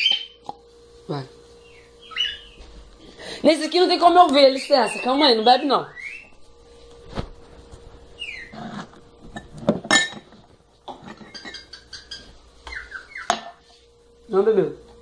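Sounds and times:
drinking glass clinking: 9.4 - 10.3.

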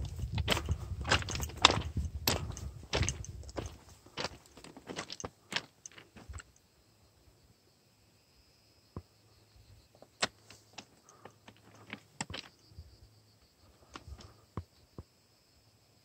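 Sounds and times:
footsteps on gravel: 0.0 - 6.5.

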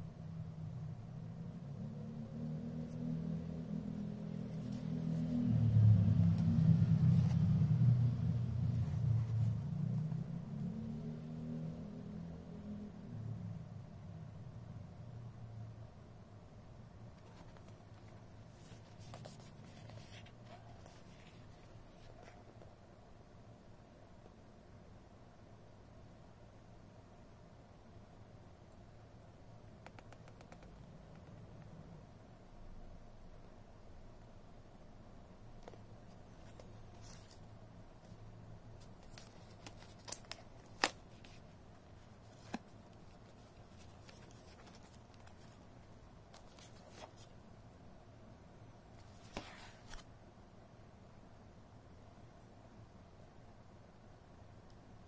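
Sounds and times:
low room hum: 0.0 - 55.0
rustling and scraping of cardboard: 36.1 - 38.2, 38.8 - 47.3, 49.0 - 50.1.

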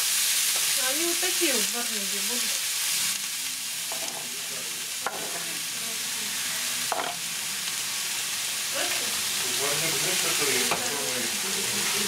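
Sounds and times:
cabbage sizzling in frying pan: 0.0 - 12.0.

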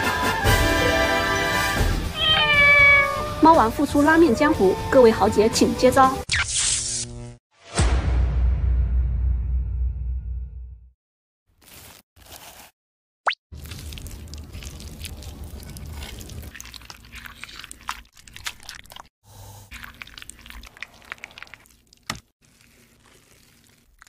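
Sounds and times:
wet paste squishing and clicking: 13.6 - 19.1, 19.8 - 24.0.

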